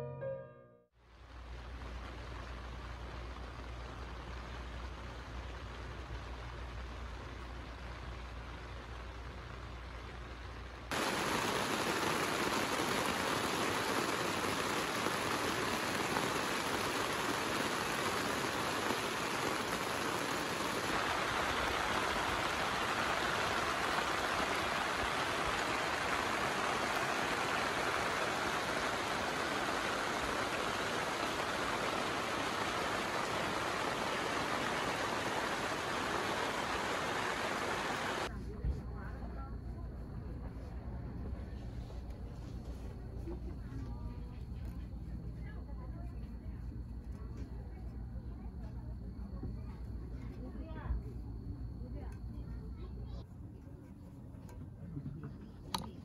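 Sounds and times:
heavy rain on a tent: 0:01.0 - 0:38.3.

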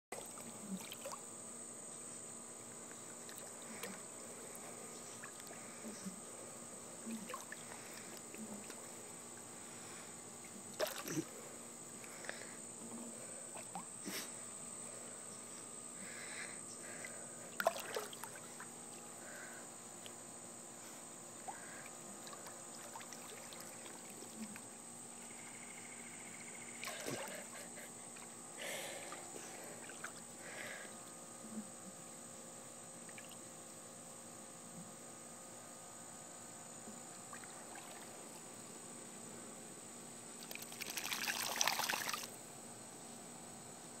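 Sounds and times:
pool water lapping: 0:00.1 - 0:01.3, 0:03.1 - 0:05.8, 0:07.1 - 0:09.9, 0:10.7 - 0:11.4, 0:13.4 - 0:14.2, 0:16.8 - 0:19.5, 0:21.4 - 0:24.8, 0:26.7 - 0:30.8, 0:37.2 - 0:38.4, 0:40.4 - 0:42.4
dog splashing in water: 0:40.5 - 0:42.3.

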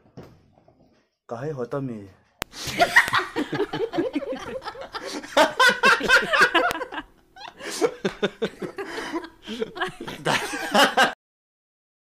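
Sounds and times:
human laughter: 0:02.6 - 0:11.2.

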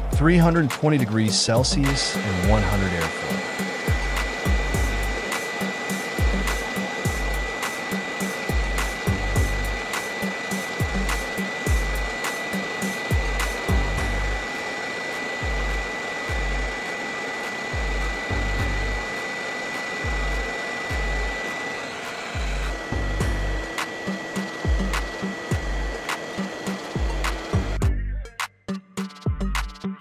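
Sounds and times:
background music with low beat: 0:00.0 - 0:30.0
thin high tone: 0:00.5 - 0:27.4
hot air nozzle hissing: 0:01.2 - 0:27.8.

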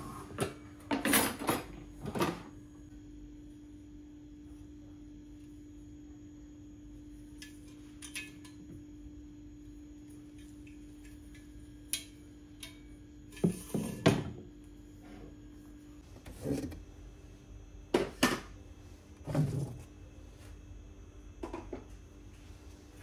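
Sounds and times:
low steady hum: 0:00.0 - 0:23.0
kitchenware clattering: 0:00.9 - 0:02.5.

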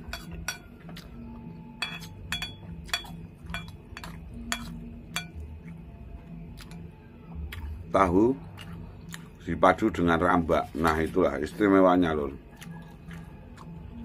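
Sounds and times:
metal spoon clinking on ceramic bowl: 0:00.0 - 0:00.8, 0:01.8 - 0:05.4.

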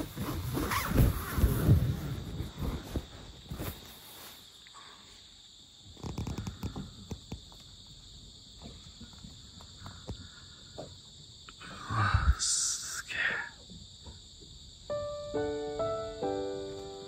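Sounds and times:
fabric rustling: 0:00.0 - 0:04.6
insects trilling: 0:00.0 - 0:17.0.

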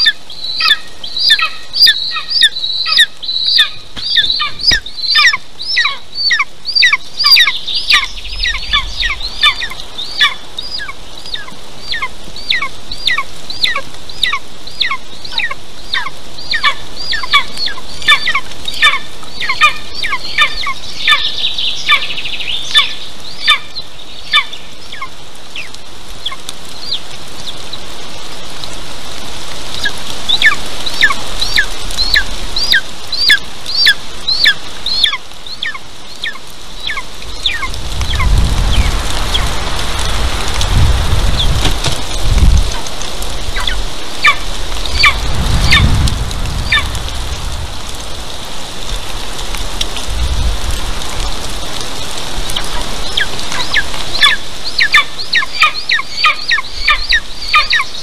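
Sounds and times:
eaglet calling: 0:00.0 - 0:27.8, 0:29.8 - 0:39.5, 0:43.5 - 0:45.9, 0:52.5 - 0:58.0.

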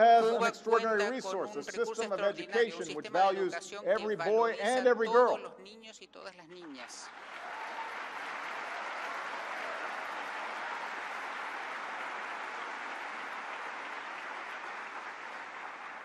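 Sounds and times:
audience applauding: 0:06.7 - 0:16.0.

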